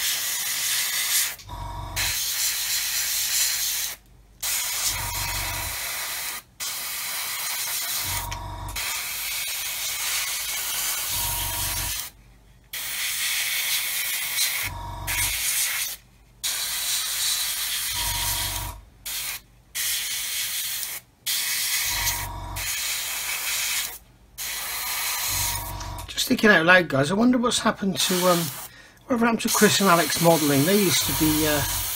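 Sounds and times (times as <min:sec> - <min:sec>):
low hum: 0:01.5 - 0:02.1, 0:08.1 - 0:08.8, 0:14.7 - 0:15.3, 0:21.9 - 0:22.6, 0:25.3 - 0:26.1
airbrush spraying hiss: 0:02.0 - 0:12.1, 0:19.1 - 0:25.8, 0:28.0 - 0:28.7, 0:29.5 - 0:31.9.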